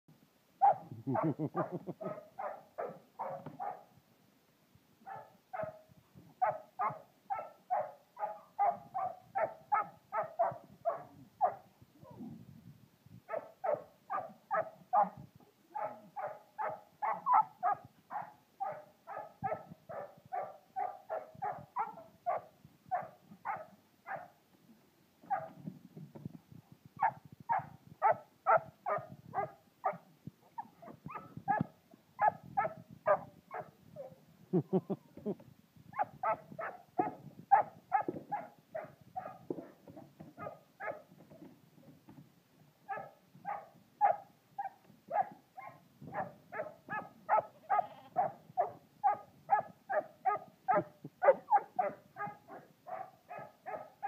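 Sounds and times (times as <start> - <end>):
puppy yapping: 15.8 - 22.4, 42.9 - 53.9.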